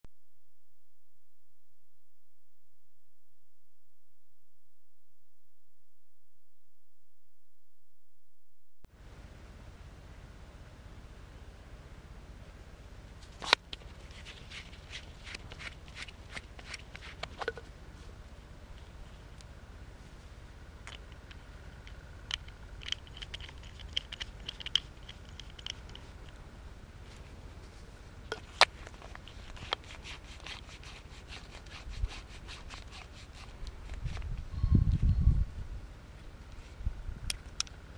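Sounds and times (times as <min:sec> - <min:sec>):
bicycle pump clicks: 0:20.9 - 0:26.1
hand pump strokes with air rush: 0:28.4 - 0:34.2.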